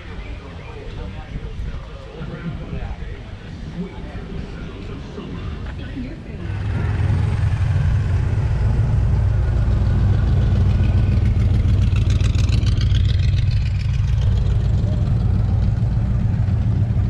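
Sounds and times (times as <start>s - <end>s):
vehicle engine rumbling: 0.0s - 17.0s.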